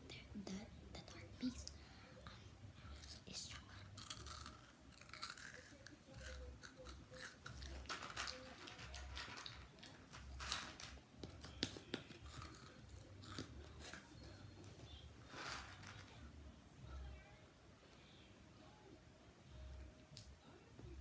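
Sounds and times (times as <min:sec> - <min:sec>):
chewing and crunching food: 0:03.8 - 0:14.8.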